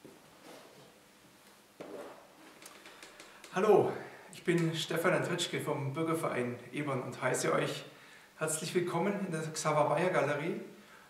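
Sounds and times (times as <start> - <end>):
faint footsteps: 0.0 - 3.6
rustling: 0.0 - 3.6.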